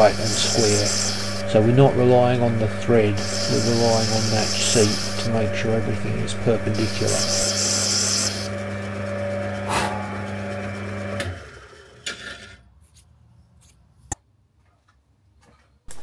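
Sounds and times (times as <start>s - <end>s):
cutting tool hiss: 0.0s - 8.5s
lathe humming: 0.0s - 12.0s.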